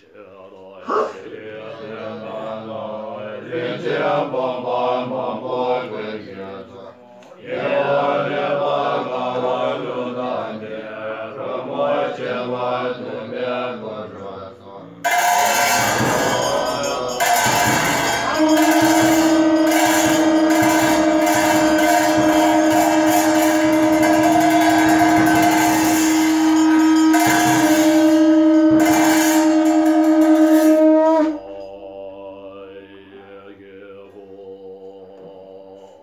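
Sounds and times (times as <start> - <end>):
soft chanted recitation: 0.0 - 36.0
percussion strikes: 0.8 - 36.0
long horn notes: 15.0 - 33.4.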